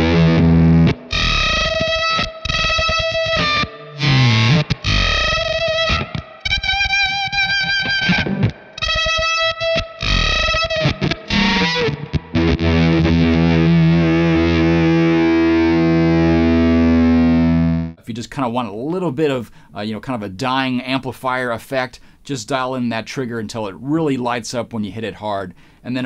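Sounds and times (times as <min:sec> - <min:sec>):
fuzzed electric guitar: 0:00.0 - 0:18.0.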